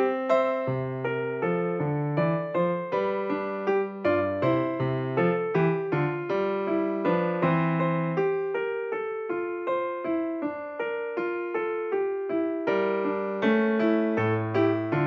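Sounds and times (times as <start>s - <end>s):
gentle piano-like keyboard melody: 0.0s - 15.0s.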